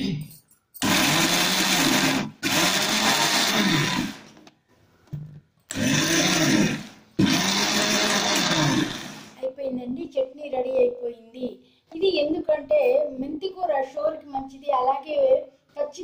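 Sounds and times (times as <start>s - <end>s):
mixer grinder motor pulsing: 0.8s - 4.4s, 5.7s - 9.4s.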